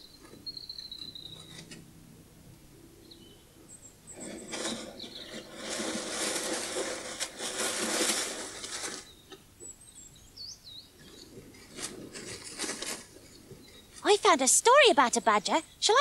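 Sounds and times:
faint bird chirps: 0.0s - 1.7s, 2.8s - 5.7s, 9.0s - 11.4s
animal rustling through dry leaves: 4.2s - 9.3s, 11.0s - 14.0s.

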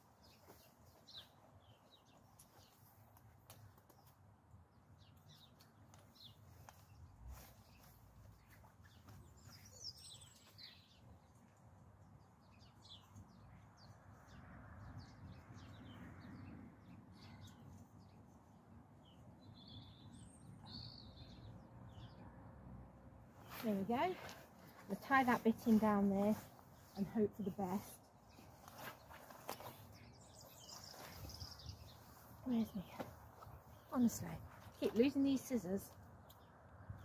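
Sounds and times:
small birds chirping: 0.0s - 22.4s, 23.3s - 37.0s.

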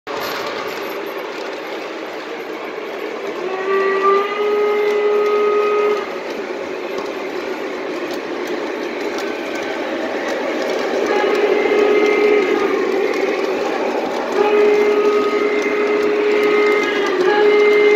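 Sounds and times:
model train rumbling on track: 0.1s - 17.9s
train horn chord: 3.4s - 6.2s, 11.0s - 13.4s, 14.2s - 17.9s.

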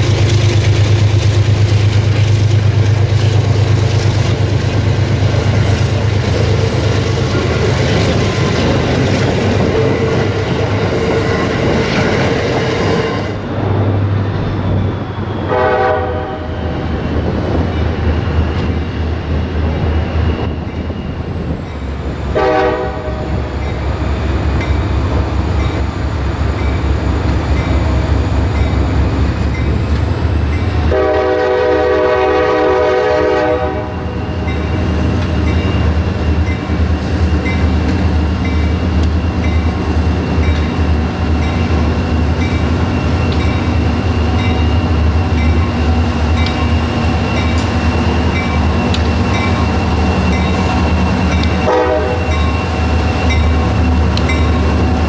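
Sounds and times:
diesel locomotives rumbling: 0.0s - 55.0s
train horn blast: 15.5s - 16.7s, 22.3s - 23.5s, 30.9s - 34.1s, 51.4s - 52.5s.

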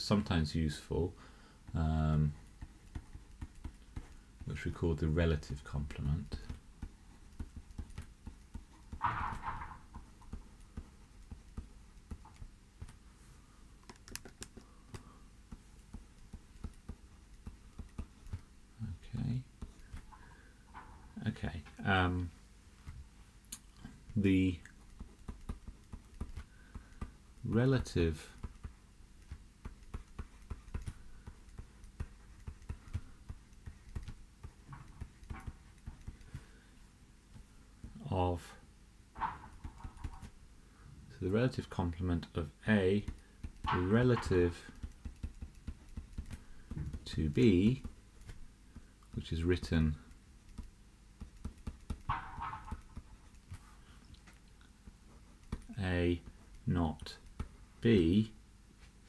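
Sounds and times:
stylus tapping on tablet screen: 2.4s - 4.6s, 6.0s - 13.0s, 13.8s - 18.5s, 24.7s - 27.2s, 28.3s - 36.6s, 39.2s - 40.4s, 42.9s - 48.9s, 50.1s - 53.7s.

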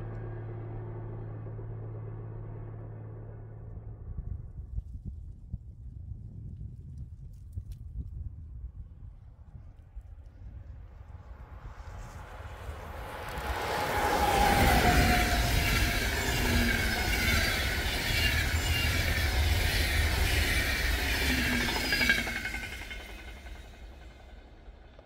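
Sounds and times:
locomotive whine: 11.3s - 25.0s
train wheels rumbling on rail: 11.3s - 25.0s.

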